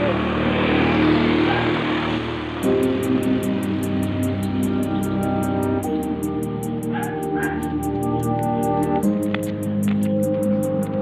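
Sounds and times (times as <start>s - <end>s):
held chords: 0.0s - 11.0s.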